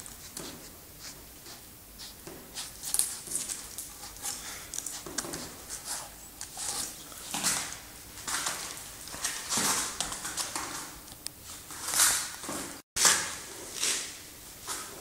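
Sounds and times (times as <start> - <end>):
dog scuffs and clicks: 0.0 - 11.2.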